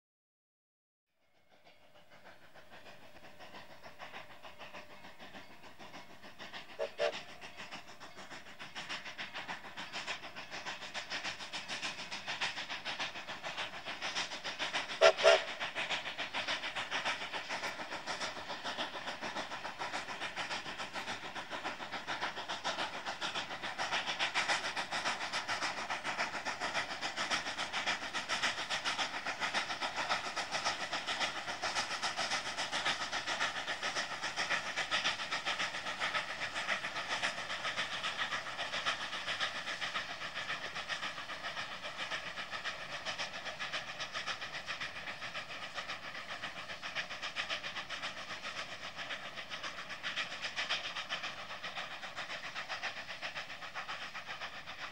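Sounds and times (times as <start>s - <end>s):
steam locomotive exhaust beats: 1.2s - 54.9s
steam whistle toots: 6.8s - 7.2s, 15.0s - 15.6s.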